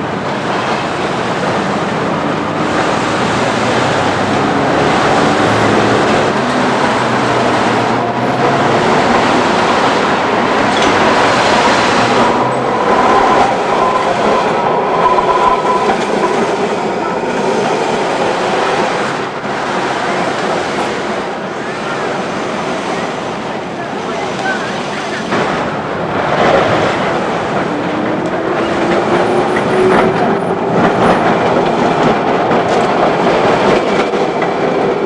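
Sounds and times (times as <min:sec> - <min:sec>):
traffic: 0:00.0 - 0:35.0
tram rolling rumble: 0:00.0 - 0:35.0
tram wheels squealing: 0:04.7 - 0:18.9.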